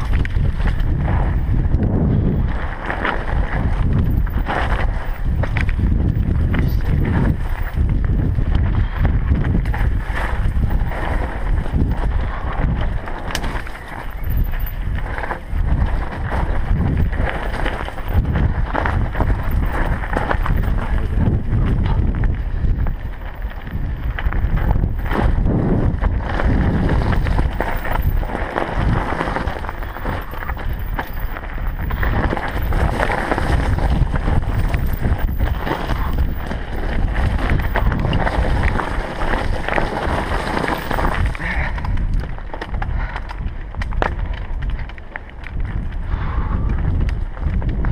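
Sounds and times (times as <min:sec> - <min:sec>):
bike rattling over bumps: 0:00.0 - 0:47.9
tyres crunching over gravel: 0:00.0 - 0:47.9
wind buffeting microphone: 0:00.0 - 0:47.9.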